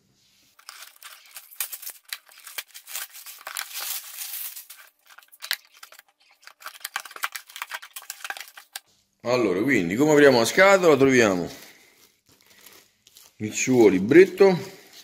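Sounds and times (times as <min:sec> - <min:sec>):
plastic wrap crinkling: 0:00.5 - 0:08.9, 0:10.4 - 0:15.0.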